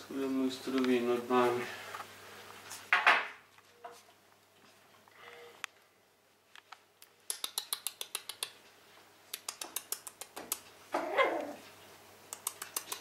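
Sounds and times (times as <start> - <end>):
puppy barking: 11.0 - 11.6
dog claws clicking on wooden floor: 12.4 - 13.0.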